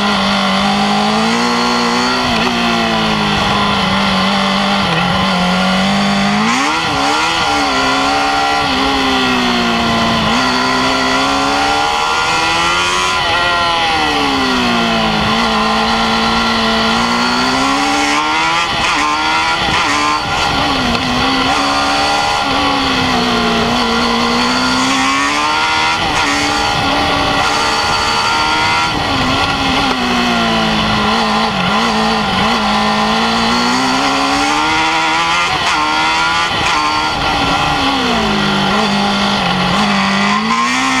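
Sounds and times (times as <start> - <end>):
race car engine revving: 0.0 - 41.0.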